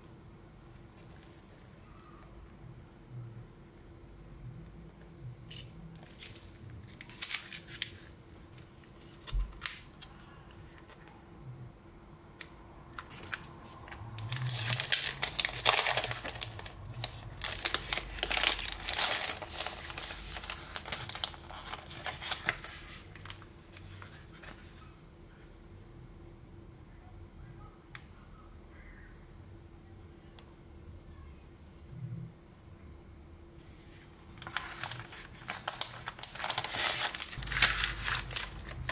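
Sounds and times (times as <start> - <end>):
plastic packaging crinkling: 5.5 - 11.0, 12.9 - 24.8, 34.3 - 38.9.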